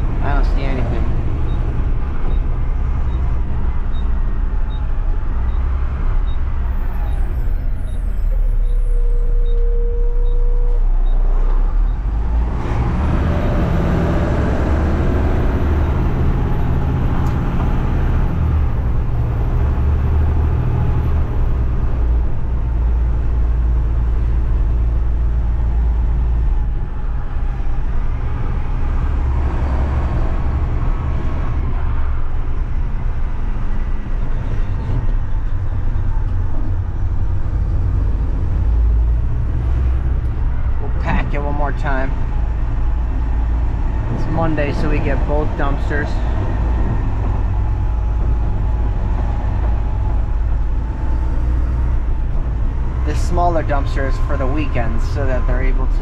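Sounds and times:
short steady tone: 7.9s - 11.3s.

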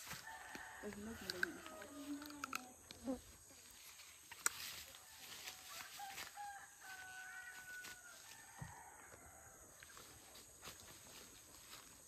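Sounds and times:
rooster crowing: 0.1s - 2.4s, 5.0s - 9.7s.

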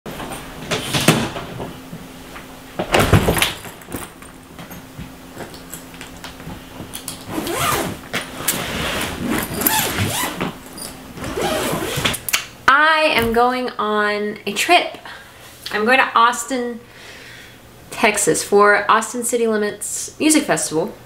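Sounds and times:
suitcase zipper sliding open: 7.2s - 12.2s.

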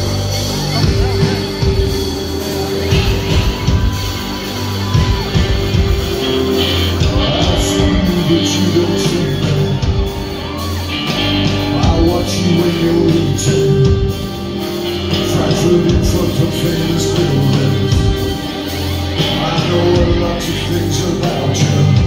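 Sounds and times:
live band music: 0.0s - 22.0s
man singing into microphone: 7.0s - 10.0s, 11.4s - 14.2s, 15.1s - 18.3s, 19.2s - 22.0s.

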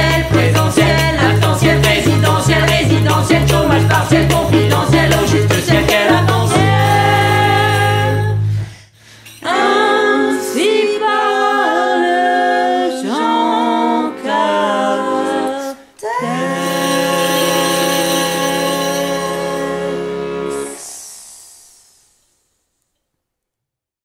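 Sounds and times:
vocal trio singing in harmony: 0.0s - 8.7s, 9.3s - 21.2s.

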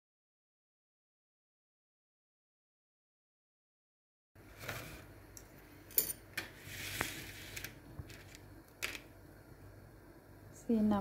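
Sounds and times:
low steady hum: 4.4s - 11.0s.

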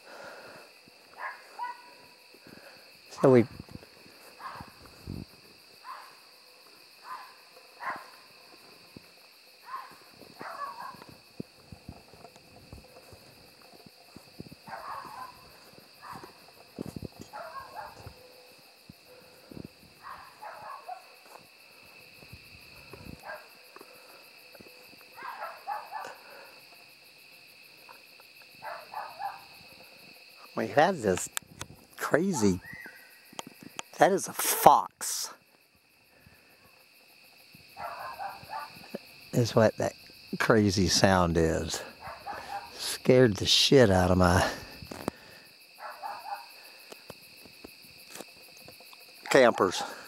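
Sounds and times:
crickets chirping: 0.0s - 50.0s
fox barking calls: 1.1s - 2.2s, 4.4s - 4.8s, 5.8s - 6.2s, 7.0s - 8.3s, 9.6s - 11.1s, 14.6s - 16.4s, 17.2s - 18.3s, 20.0s - 21.2s, 23.2s - 23.5s, 25.2s - 26.4s, 28.6s - 29.5s, 37.8s - 38.9s, 42.0s - 42.8s, 45.8s - 46.6s.

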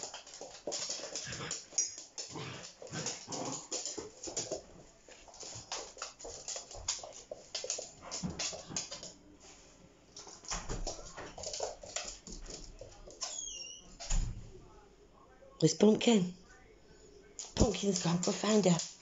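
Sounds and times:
puppies scuffling on floor: 0.0s - 14.3s, 17.4s - 19.0s.

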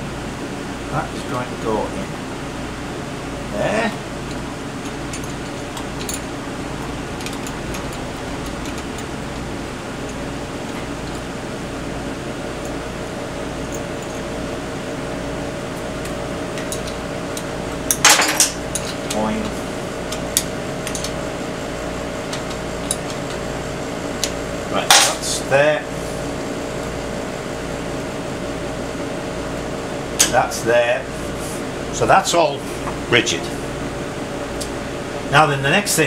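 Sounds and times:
workshop hum: 0.0s - 36.0s
metal tools and bolts clinking: 4.8s - 6.3s, 18.0s - 19.2s.

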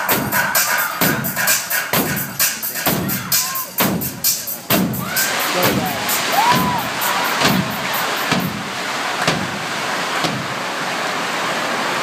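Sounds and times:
show music with thumping beat: 0.0s - 9.6s
dense wash of noise: 4.1s - 12.0s.

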